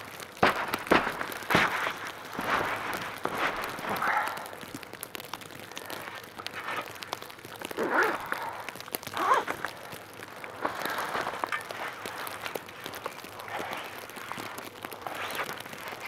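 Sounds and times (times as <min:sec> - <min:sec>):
tent nylon rustling: 0:00.0 - 0:04.7, 0:05.8 - 0:16.0
footsteps crunching snow: 0:00.0 - 0:04.8, 0:09.1 - 0:16.0.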